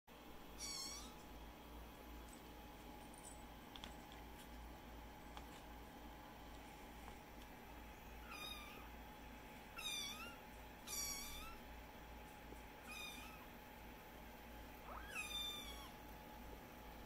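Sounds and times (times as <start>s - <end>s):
kitten meowing: 0.6s - 1.2s, 8.2s - 8.9s, 9.8s - 11.6s, 12.8s - 13.5s, 14.8s - 16.0s.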